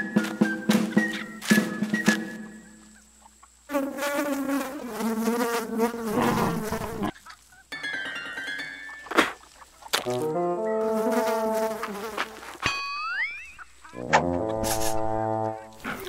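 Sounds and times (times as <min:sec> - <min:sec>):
music: 0:00.0 - 0:03.0, 0:07.7 - 0:09.4, 0:10.0 - 0:12.0, 0:14.0 - 0:15.9
cartoon fly buzzing: 0:03.7 - 0:07.2, 0:10.0 - 0:12.6, 0:13.9 - 0:16.0.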